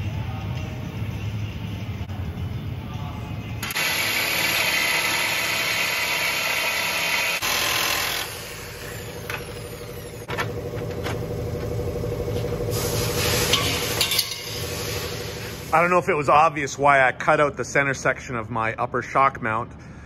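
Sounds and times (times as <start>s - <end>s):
jigsaw cutting metal: 3.6s - 10.3s.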